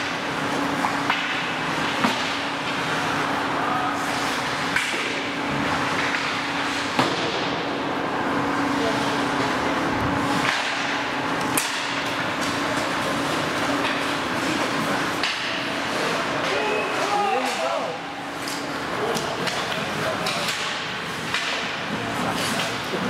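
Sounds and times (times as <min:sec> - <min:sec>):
hockey sticks clacking on puck: 0:18.4 - 0:23.0.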